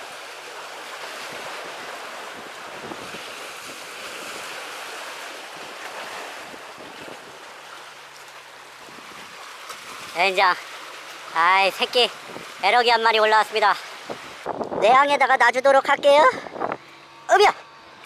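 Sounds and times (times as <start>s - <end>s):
sea waves breaking on concrete: 0.0s - 15.4s
wind buffeting microphone: 1.2s - 4.6s, 5.6s - 7.5s, 14.0s - 15.2s, 16.3s - 16.8s.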